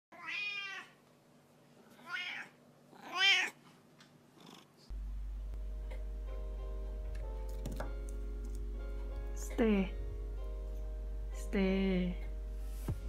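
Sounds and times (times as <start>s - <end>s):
cat meowing: 0.1s - 1.0s, 2.0s - 3.6s
steady low hum: 4.9s - 13.0s.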